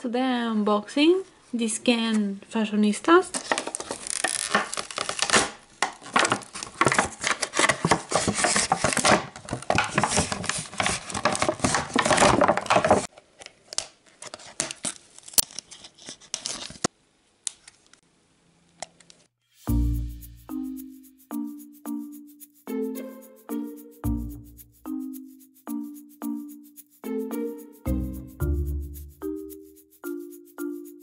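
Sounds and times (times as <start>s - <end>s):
plastic and cardboard crinkling tearing: 3.3s - 16.9s.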